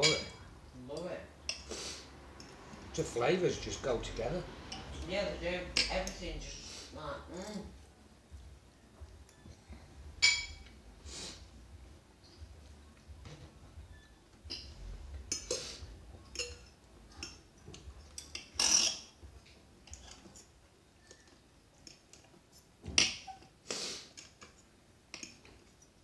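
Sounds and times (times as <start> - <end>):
cutlery clinking on plates: 0.0 - 0.4, 10.2 - 10.7, 15.3 - 19.2, 19.9 - 23.5
cutlery scraping plates: 0.0 - 0.4, 10.2 - 10.7, 18.2 - 19.2.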